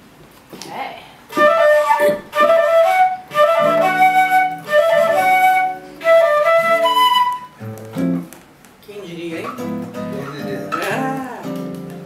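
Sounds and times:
flute melody: 0:01.3 - 0:08.2
classical guitar notes: 0:01.4 - 0:08.4, 0:09.5 - 0:12.0.

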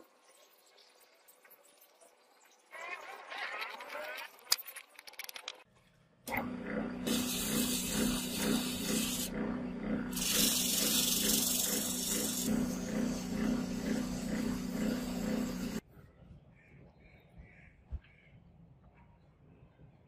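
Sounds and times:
metal lathe humming: 0:06.3 - 0:15.8.

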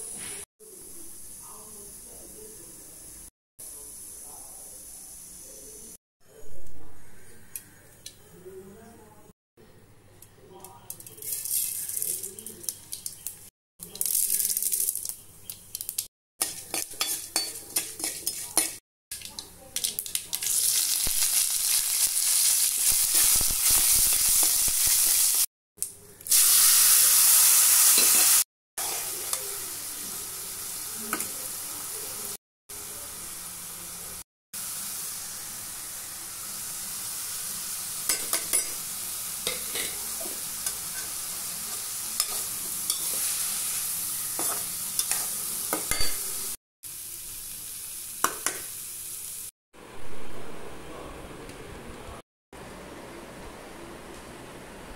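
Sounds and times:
sizzling in hot oil: 0:11.1 - 0:25.5, 0:26.3 - 0:49.5
metal spoon stirring and scraping: 0:16.4 - 0:19.4, 0:39.5 - 0:43.4, 0:44.3 - 0:46.1.

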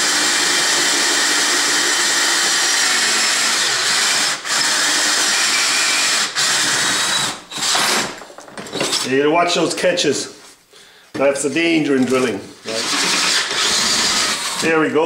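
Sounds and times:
power drill boring through steel: 0:00.0 - 0:08.2, 0:12.7 - 0:14.8.

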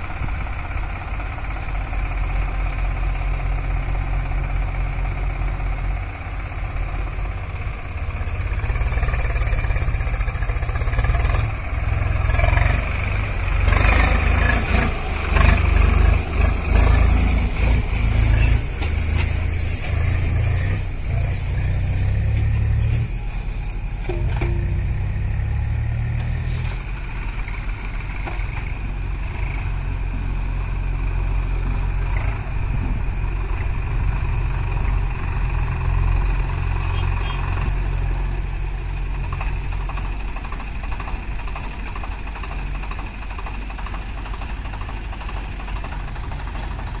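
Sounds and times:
diesel engines rumbling: 0:00.0 - 0:47.0.

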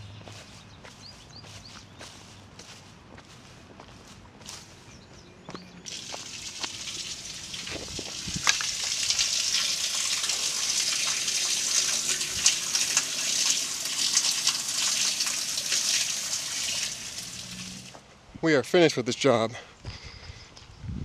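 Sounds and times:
water splashing from drain pipe: 0:05.9 - 0:18.0.

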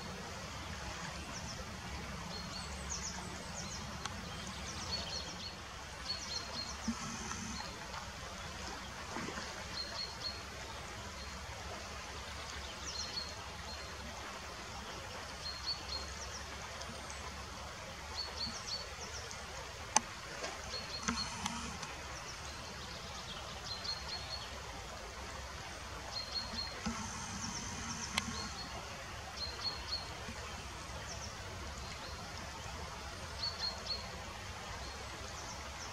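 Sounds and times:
river water rushing over riffles: 0:00.0 - 0:35.9.

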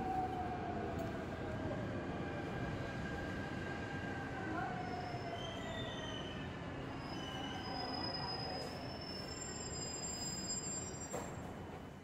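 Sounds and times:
subway train rumble: 0:00.0 - 0:12.0
high-pitched wheel squeals: 0:07.0 - 0:11.3.

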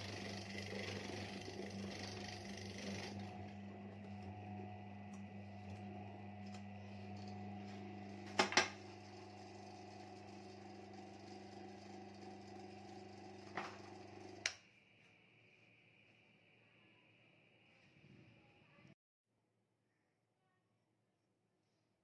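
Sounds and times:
electric motor humming: 0:00.0 - 0:14.5
click: 0:14.4 - 0:14.6.

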